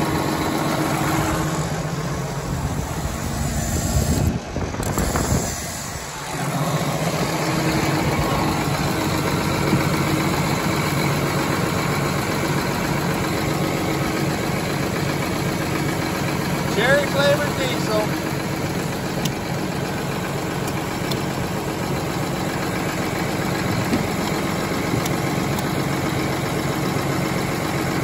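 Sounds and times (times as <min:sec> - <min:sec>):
engine idling: 0:00.0 - 0:28.0.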